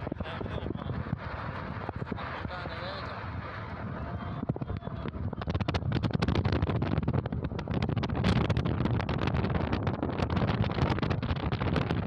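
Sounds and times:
road and vehicle noise: 0.0 - 12.0
wind buffeting microphone: 0.0 - 12.0.

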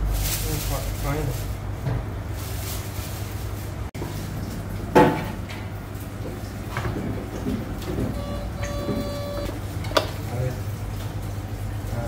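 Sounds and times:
multi-pitch tone: 8.2 - 9.5.

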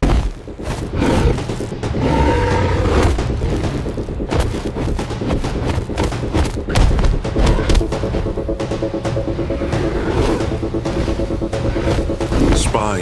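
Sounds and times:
heavy thuds and impacts: 0.0 - 2.0, 3.0 - 8.3.

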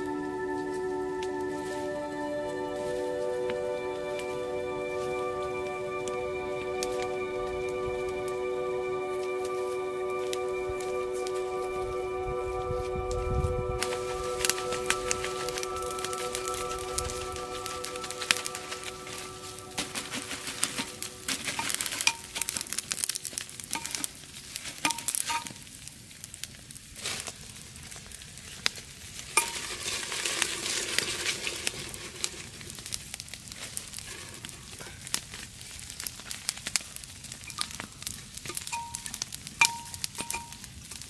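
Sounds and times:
campfire crackling: 0.0 - 41.0
food sizzling in a pot: 13.8 - 25.8, 29.1 - 41.0.

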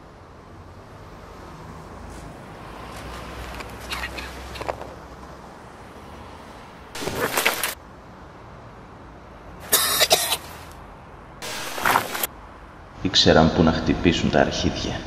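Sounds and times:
man coughing hard: 9.7 - 10.4.

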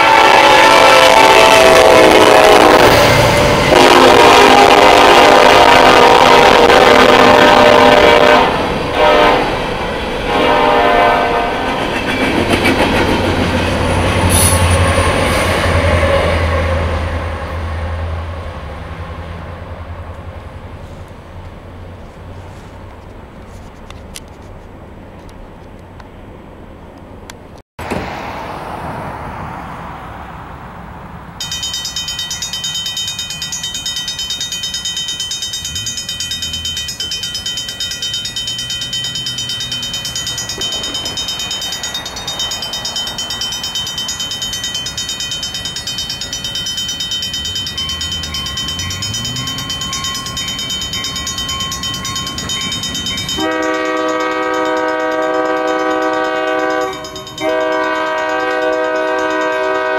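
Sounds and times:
locomotive air horn: 0.0 - 11.7, 53.4 - 59.9
railroad crossing bell ringing: 0.0 - 17.8, 31.4 - 59.9.

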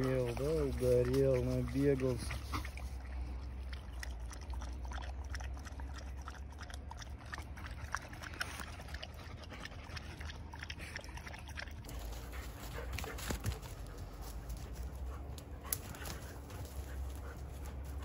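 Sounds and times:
dog panting: 7.4 - 18.0.

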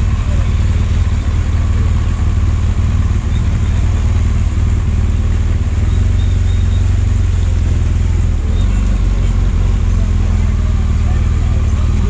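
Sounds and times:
motorcycle engine low rumble: 0.0 - 12.0.

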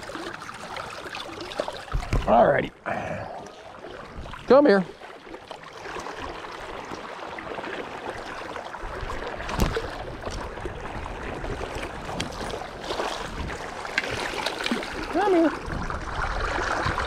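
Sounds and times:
river water rushing: 3.4 - 17.0
fish thrashing at water surface: 11.5 - 17.0.

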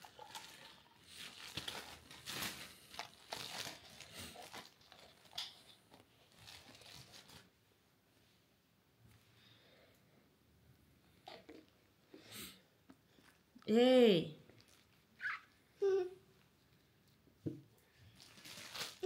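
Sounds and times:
crinkling and rustling material: 0.0 - 7.6, 14.5 - 15.5, 17.8 - 19.0.

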